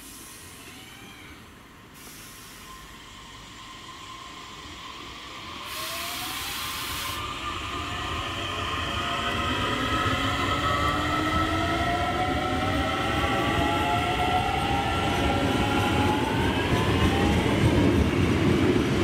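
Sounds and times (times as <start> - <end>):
air hiss: 0.0 - 0.8, 1.9 - 3.1, 5.6 - 7.4
electric train traction whine: 2.6 - 17.9.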